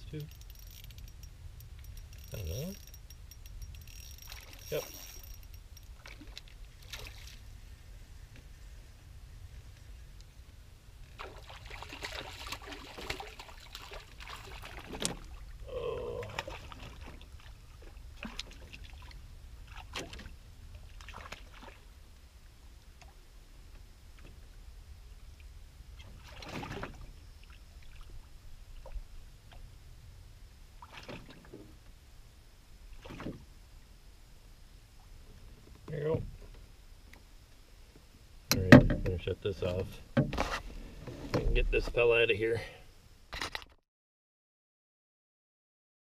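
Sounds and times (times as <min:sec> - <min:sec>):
low steady rumble: 0:00.0 - 0:43.3
water splashes: 0:06.0 - 0:07.5, 0:11.1 - 0:22.0, 0:26.0 - 0:29.6, 0:30.8 - 0:31.8, 0:32.8 - 0:33.4
sharp knocks on canoe: 0:38.5 - 0:39.2, 0:40.2 - 0:40.6.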